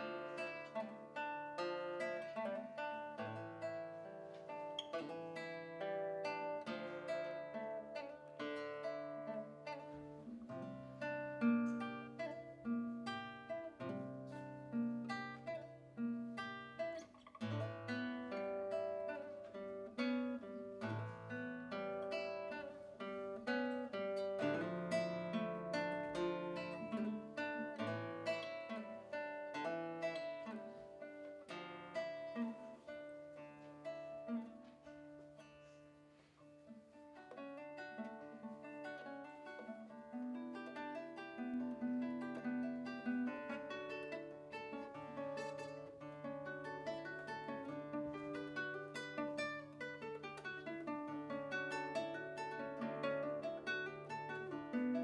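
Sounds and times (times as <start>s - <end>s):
fingerstyle classical guitar: 0.0s - 55.0s.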